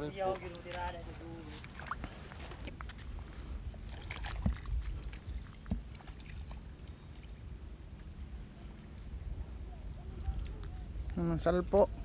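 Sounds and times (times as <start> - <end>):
clicks of digging in wet mud: 1.6 - 6.6
wind rumble on microphone: 1.7 - 12.0.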